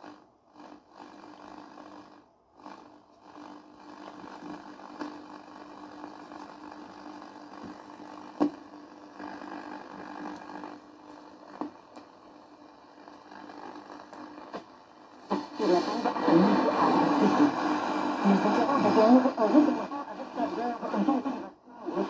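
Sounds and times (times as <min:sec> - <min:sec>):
steady low hum: 0:00.0 - 0:22.0
radio static: 0:12.8 - 0:22.0.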